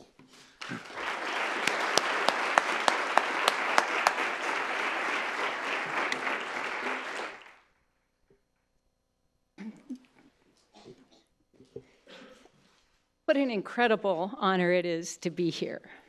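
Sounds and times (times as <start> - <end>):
person clapping sharply: 0.6 - 7.6
audience applauding: 0.6 - 7.7.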